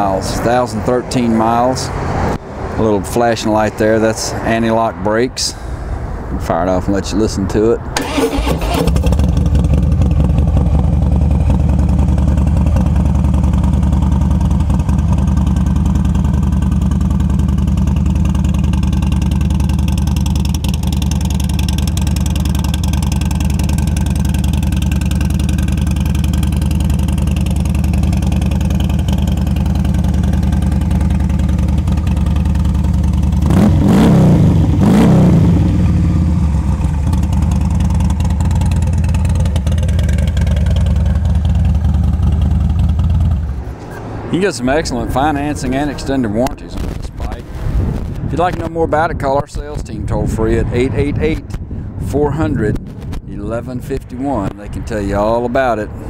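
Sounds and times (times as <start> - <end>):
motorcycle engine idling: 8.0 - 33.8, 35.4 - 43.7
motorcycle throttle blips: 8.0 - 44.1, 45.3 - 54.9.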